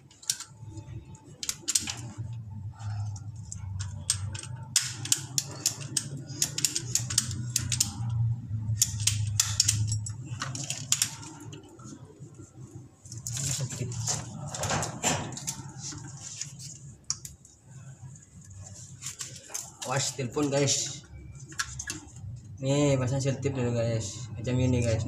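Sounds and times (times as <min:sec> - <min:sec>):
low steady hum: 0:00.0 - 0:25.0
plastic pipe fittings clicking: 0:03.2 - 0:11.2.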